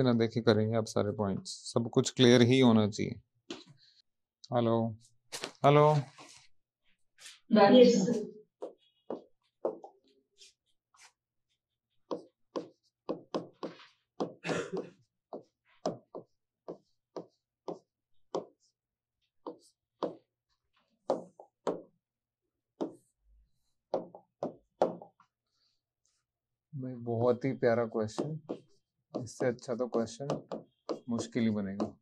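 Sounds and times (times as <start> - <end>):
pen tapping on board: 8.6 - 9.9, 12.0 - 18.7, 19.4 - 20.3, 21.0 - 21.9, 22.8 - 23.1, 23.9 - 25.2, 27.9 - 32.0
pen scratching on board: 12.0 - 14.4, 15.0 - 18.8, 19.4 - 21.8, 28.1 - 31.9.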